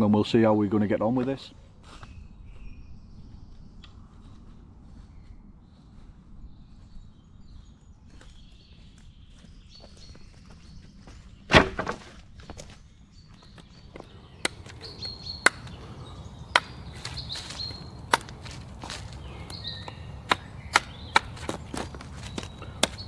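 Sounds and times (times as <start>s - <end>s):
faint bird chirps: 1.9s - 11.5s
knife chopping wooden pole: 11.5s - 12.2s, 15.4s - 15.7s, 16.5s - 18.6s, 19.8s - 23.0s.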